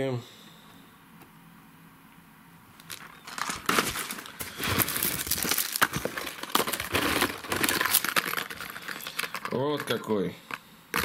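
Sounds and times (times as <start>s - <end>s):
plastic packaging crinkling: 2.8s - 11.0s.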